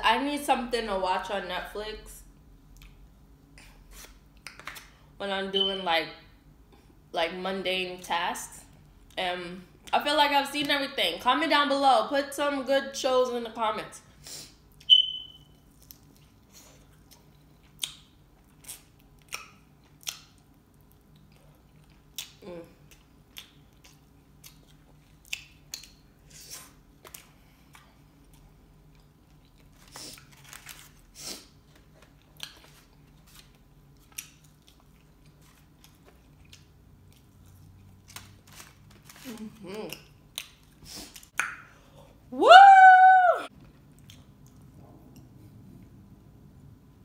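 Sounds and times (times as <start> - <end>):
person chewing and biting: 15.7 - 39.2.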